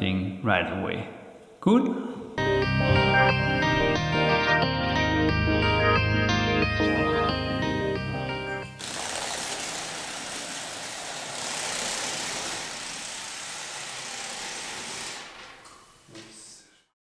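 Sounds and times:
music: 0:02.4 - 0:08.8
steady rushing hiss: 0:08.8 - 0:15.6.

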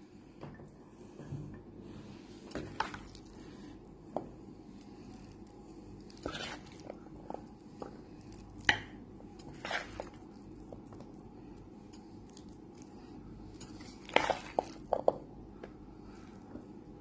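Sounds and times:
spoon scraping a mixing bowl: 0:06.1 - 0:08.0, 0:08.6 - 0:10.4, 0:13.5 - 0:15.1.

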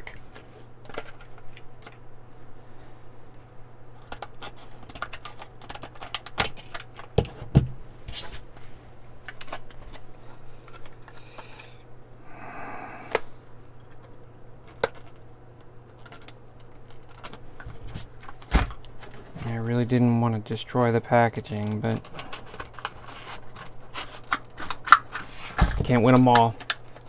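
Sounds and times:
scissors snipping plastic: 0:04.1 - 0:07.1.

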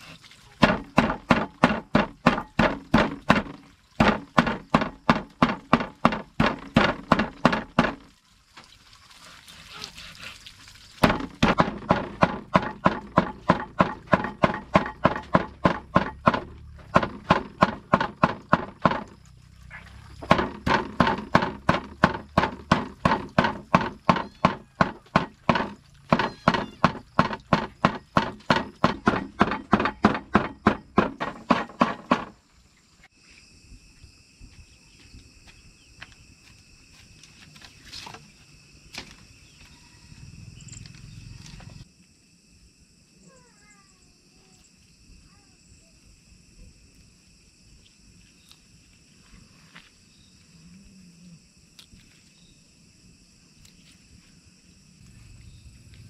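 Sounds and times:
rapid chopping strikes: 0:00.6 - 0:08.0, 0:11.0 - 0:19.2, 0:20.2 - 0:32.3.

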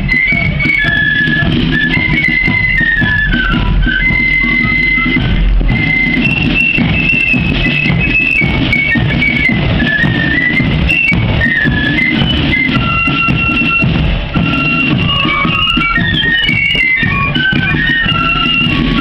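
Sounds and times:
drums beating: 0:00.0 - 0:19.0
flute band playing: 0:00.0 - 0:19.0.

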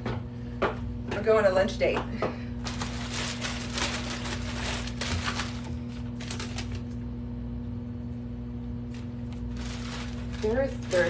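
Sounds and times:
plastic mailer bag crinkling: 0:02.6 - 0:07.0, 0:08.9 - 0:11.0.

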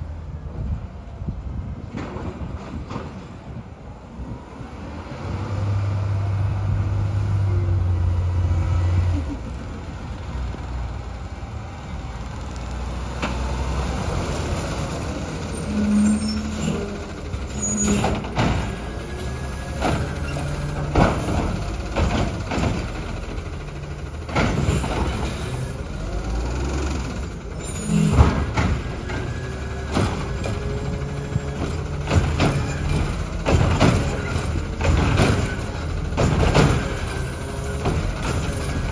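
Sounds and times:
garbage truck diesel engine: 0:00.0 - 0:38.9
hydraulic whines: 0:15.4 - 0:21.9, 0:24.5 - 0:38.9.

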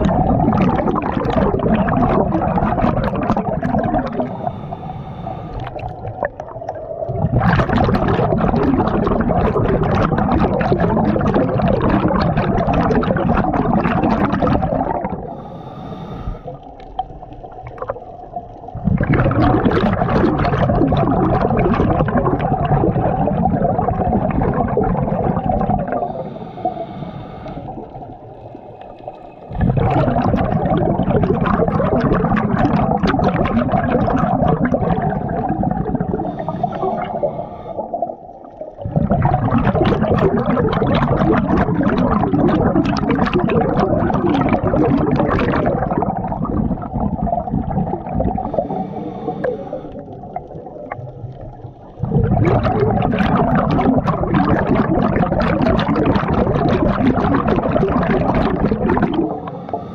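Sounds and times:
exhaled bubbles underwater: 0:00.0 - 0:59.9
regulator inhalation hiss: 0:04.3 - 0:05.8, 0:15.3 - 0:16.7, 0:26.1 - 0:27.9, 0:36.3 - 0:38.0, 0:48.5 - 0:50.0.

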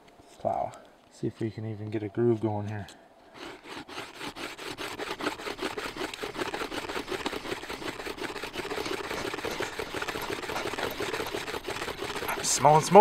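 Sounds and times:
fungus rasping on wood: 0:03.3 - 0:13.0.

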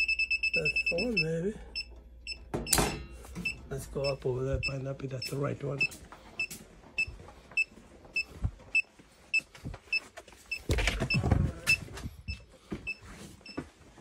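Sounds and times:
rubbing and handling noise: 0:06.0 - 0:14.0.

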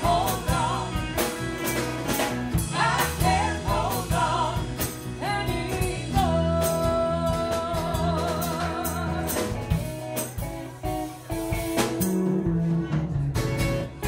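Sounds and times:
live rock band playing: 0:00.0 - 0:14.0.

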